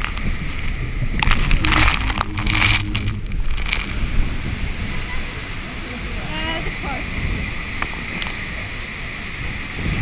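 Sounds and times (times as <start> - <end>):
low rumble: 0.6 - 5.7
water rushing and splashing: 1.0 - 10.0.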